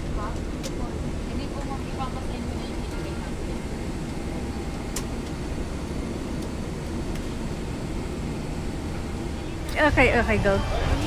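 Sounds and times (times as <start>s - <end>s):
airliner cabin hum: 0.0s - 11.0s.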